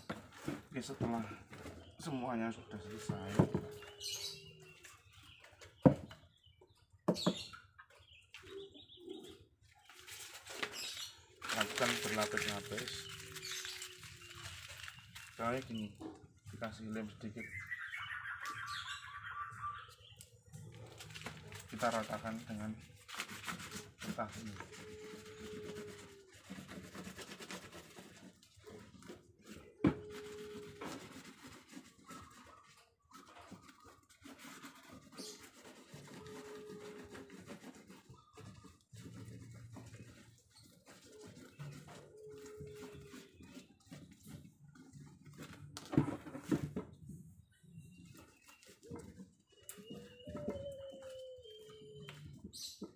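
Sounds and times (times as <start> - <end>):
paper rubbing on wood: 9.8 - 17.4, 20.8 - 46.8, 47.8 - 52.8.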